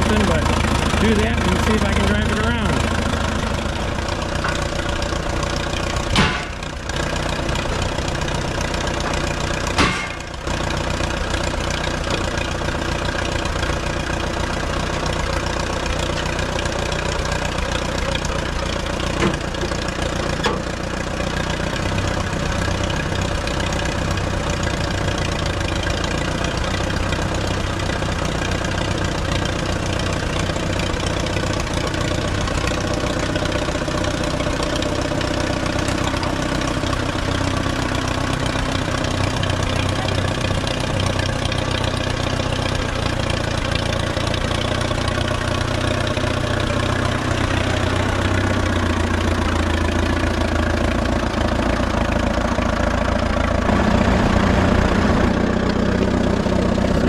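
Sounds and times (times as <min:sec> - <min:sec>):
tractor engine idling: 0:00.0 - 0:57.0
sharp engine bangs: 0:06.0 - 0:06.8, 0:09.7 - 0:10.3.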